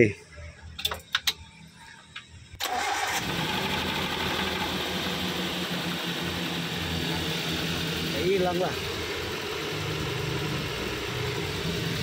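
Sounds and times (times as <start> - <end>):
car engine starting and idling: 2.6 - 12.0.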